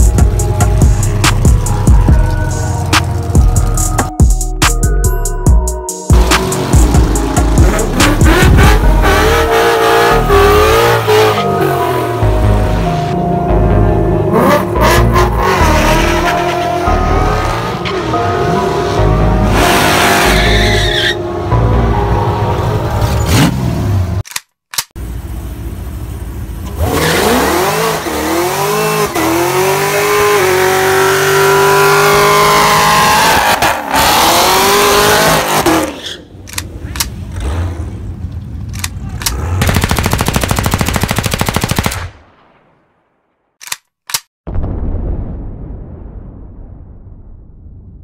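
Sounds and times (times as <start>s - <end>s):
car engine revving hard: 6.2s - 11.4s, 26.7s - 35.9s
tires squealing: 18.8s - 23.7s, 26.7s - 38.0s
clicks: 43.6s - 44.3s.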